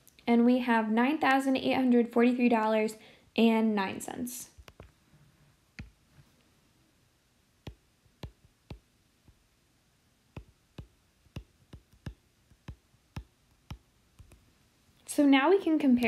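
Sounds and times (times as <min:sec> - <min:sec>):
stylus tapping on glass screen: 0:07.7 - 0:09.4, 0:10.3 - 0:14.4.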